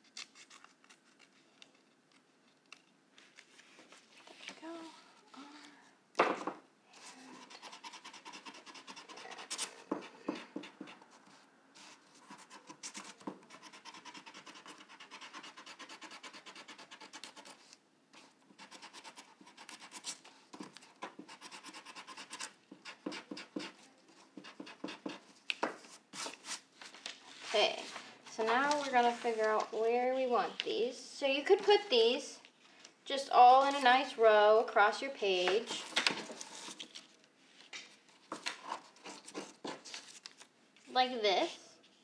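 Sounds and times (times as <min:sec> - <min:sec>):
eraser rubbing on paper: 0:07.3 - 0:11.2, 0:11.8 - 0:17.6, 0:18.2 - 0:25.3.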